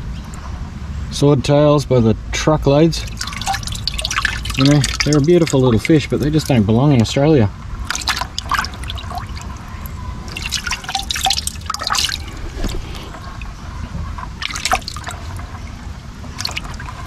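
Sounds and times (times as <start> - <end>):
water splashing in a bucket: 3.0 - 7.2, 7.8 - 17.0.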